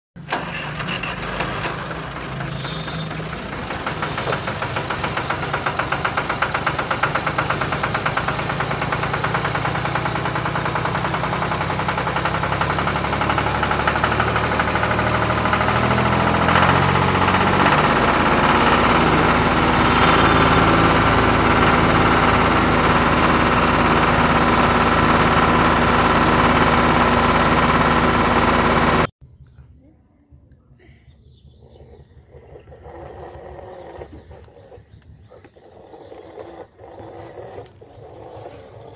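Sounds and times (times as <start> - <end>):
toy tractor motor whirring: 32.4 - 38.9.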